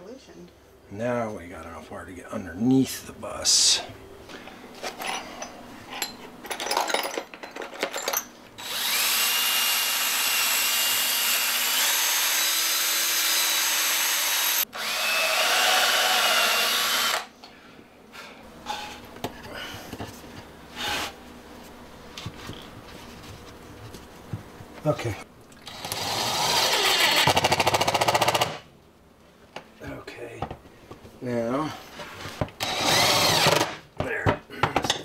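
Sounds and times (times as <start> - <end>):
cordless drill boring through wood: 8.6 - 17.3, 25.6 - 28.6, 32.6 - 33.8.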